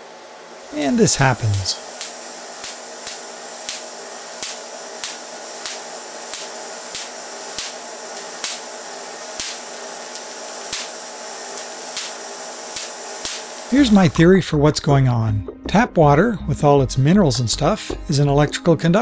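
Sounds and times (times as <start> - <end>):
generator whirring: 0.0 - 14.4
electrical sparks snapping: 0.6 - 14.0.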